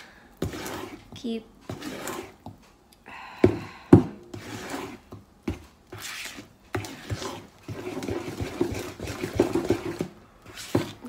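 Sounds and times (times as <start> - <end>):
utensil scraping batter in bowl: 0.0 - 2.6, 4.2 - 11.0.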